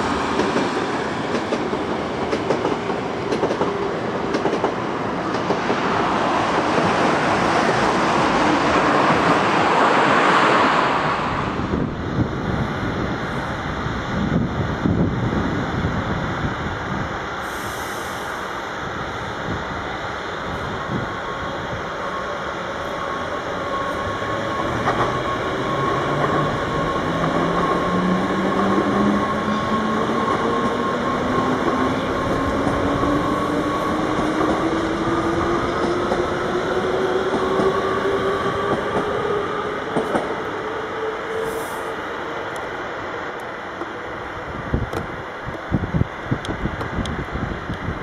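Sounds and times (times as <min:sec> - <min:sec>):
train wheels rumbling: 0:00.0 - 0:13.5, 0:19.6 - 0:42.7.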